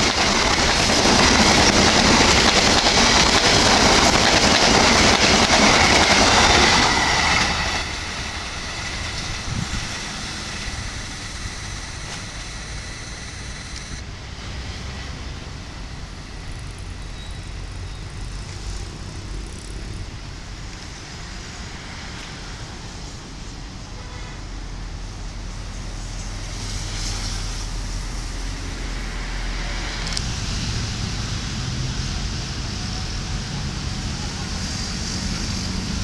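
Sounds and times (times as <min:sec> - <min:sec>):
train rumbling on rails: 0:00.0 - 0:36.0.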